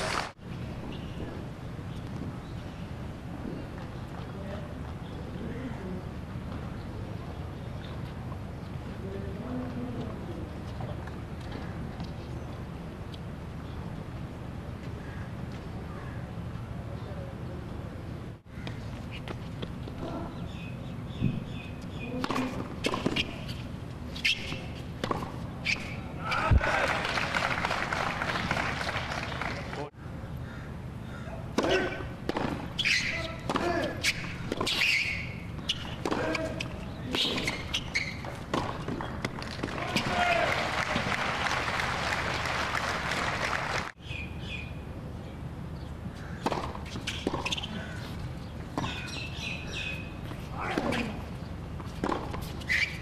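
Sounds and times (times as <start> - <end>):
birds chirping: 20.3 - 24.7, 44.0 - 50.5
tennis ball bouncing: 21.2 - 23.5, 24.3 - 25.9, 31.5 - 40.2, 46.4 - 52.9
racket striking tennis ball: 22.2 - 23.4, 31.5 - 40.3, 46.4 - 47.7, 50.6 - 52.9
spectators applauding: 26.6 - 29.9, 39.7 - 43.9
tennis ball knocks: 46.4 - 47.6.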